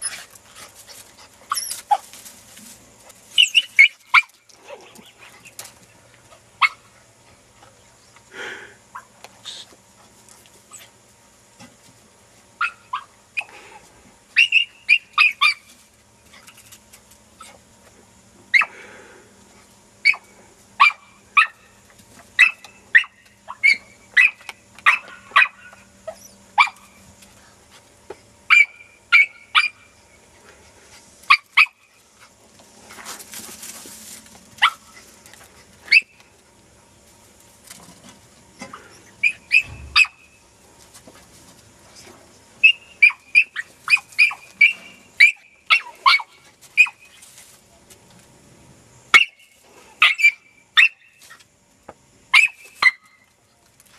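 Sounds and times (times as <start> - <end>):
dog yelping: 1.5 - 2.1, 3.4 - 5.2, 12.6 - 13.5, 14.4 - 15.7, 22.4 - 26.9, 28.5 - 29.9, 39.0 - 40.3, 42.6 - 47.1, 50.0 - 51.1, 52.3 - 53.1.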